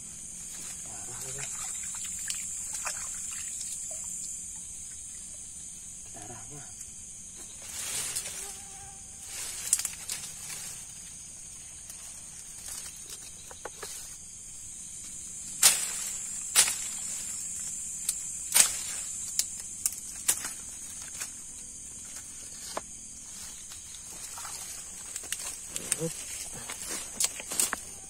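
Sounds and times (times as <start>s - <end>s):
night insects chirring: 0.0s - 28.0s.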